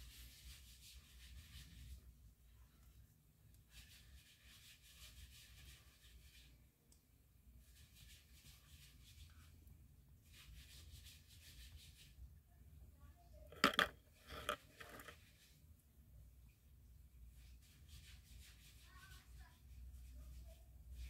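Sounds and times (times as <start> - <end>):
faint handling noise: 13.4 - 15.3.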